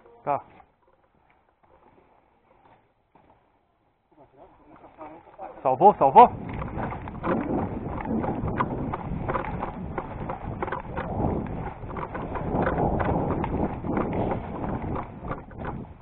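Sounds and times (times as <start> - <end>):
boots running on concrete: 6.0 - 16.0.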